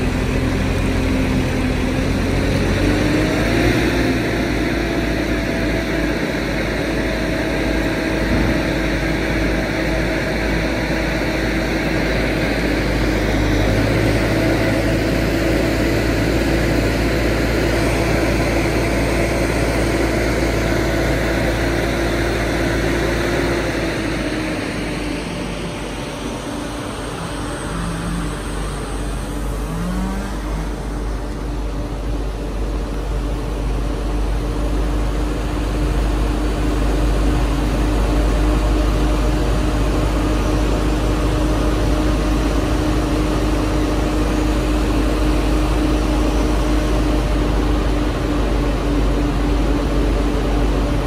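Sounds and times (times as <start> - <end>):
crane diesel engine droning: 0.0 - 51.0.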